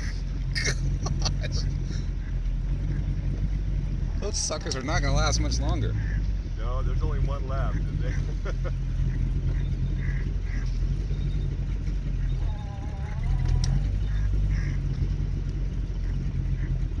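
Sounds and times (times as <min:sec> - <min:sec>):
small boat motor running: 0:00.0 - 0:17.0
long wavering call: 0:12.3 - 0:14.0.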